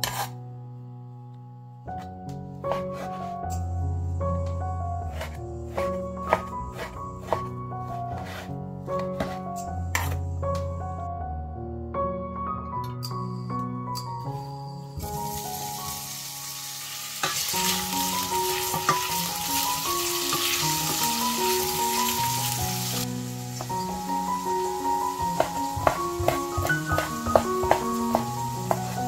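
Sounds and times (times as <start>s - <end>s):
soft background music: 0.0s - 29.0s
knife chopping on wooden board: 5.1s - 7.5s, 25.4s - 29.0s
bacon sizzling in oil: 15.0s - 29.0s
wooden spatula knocking: 25.4s - 29.0s.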